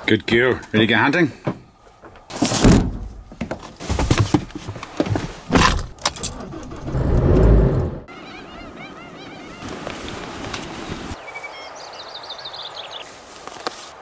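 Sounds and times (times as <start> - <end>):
engine cranking and starting: 5.8 - 8.0
birds chirping: 7.9 - 13.2.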